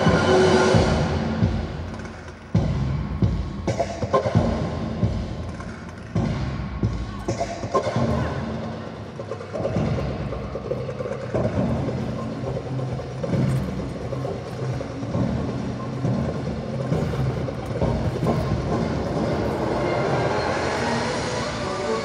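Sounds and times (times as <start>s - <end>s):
music over sound system: 0.0s - 22.0s.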